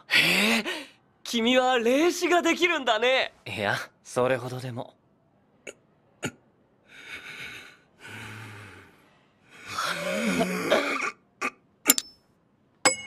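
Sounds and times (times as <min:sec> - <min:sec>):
man breathing heavily: 0:06.8 - 0:10.4.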